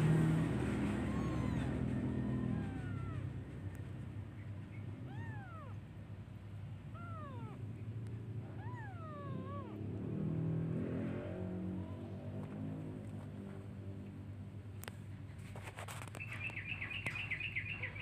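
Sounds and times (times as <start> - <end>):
kittens mewing: 0.0 - 12.8
low background hum: 0.0 - 18.0.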